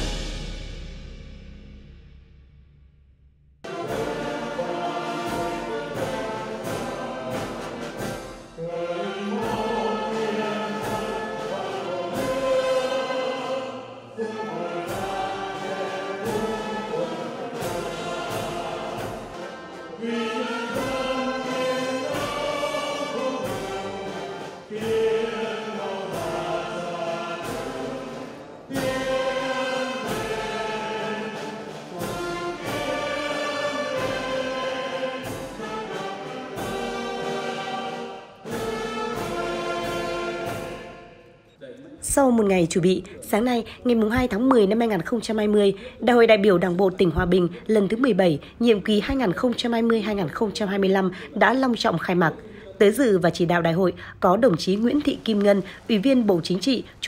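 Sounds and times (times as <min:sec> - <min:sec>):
orchestra with brass: 0:00.0 - 0:01.2, 0:03.6 - 0:41.4
choir singing: 0:03.6 - 0:41.8.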